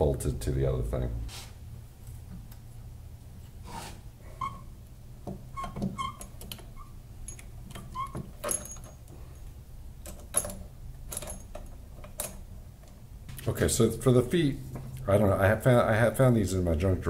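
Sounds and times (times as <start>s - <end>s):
faint low hum: 0.0s - 17.0s
metal hardware clicking and clinking: 5.2s - 13.0s.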